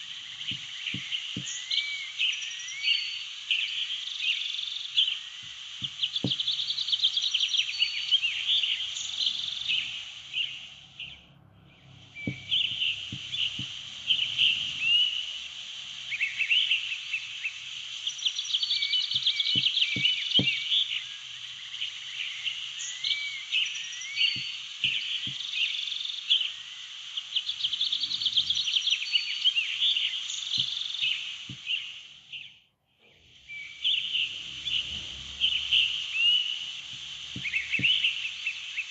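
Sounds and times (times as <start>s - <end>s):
birds chirping: 0.0s - 38.9s
faint short taps: 5.4s - 6.6s.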